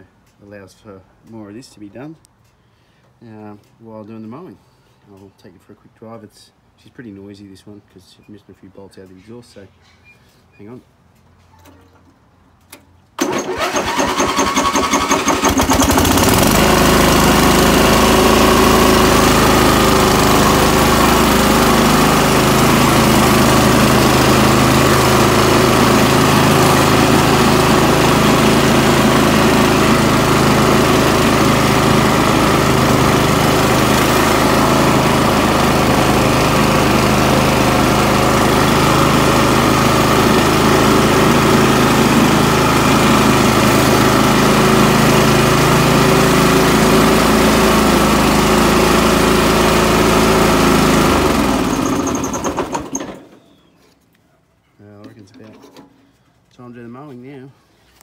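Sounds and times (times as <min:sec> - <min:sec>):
mower engine starting and running: 0:12.5 - 0:53.6.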